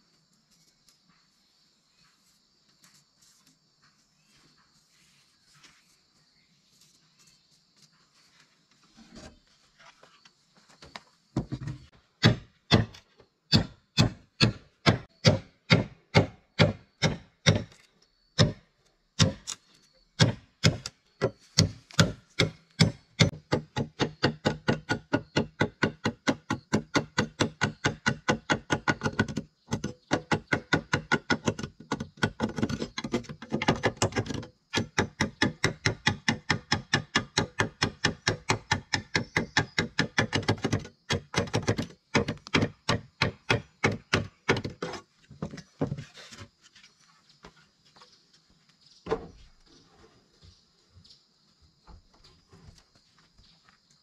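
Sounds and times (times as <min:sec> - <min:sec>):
machete chopping wood: 0:12.2 - 0:17.8, 0:19.2 - 0:19.6, 0:20.2 - 0:45.0.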